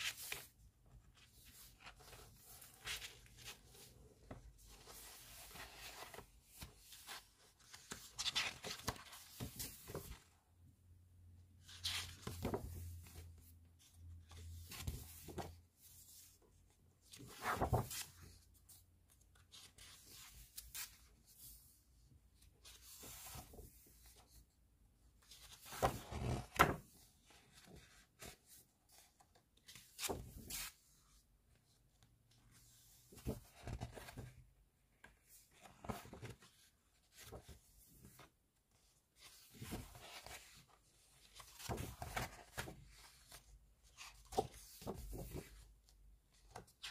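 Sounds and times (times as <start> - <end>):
book pages turning: 0.0 - 10.2, 17.1 - 18.4, 25.3 - 31.0, 35.3 - 38.3, 39.2 - 45.6.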